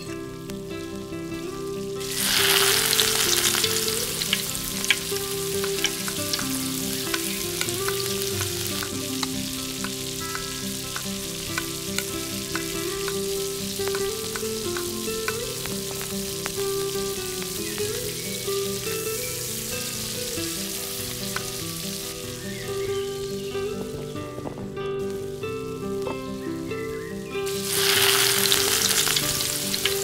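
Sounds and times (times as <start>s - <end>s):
food sizzling in a pan: 0.0s - 30.0s
soft background music: 0.0s - 30.0s
stirring clicks: 2.1s - 18.0s.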